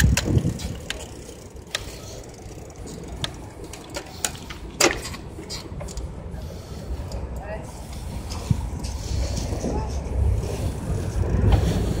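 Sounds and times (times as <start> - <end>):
sharp clicks and knocks: 0.0 - 2.0
distant traffic rumble: 0.0 - 12.0.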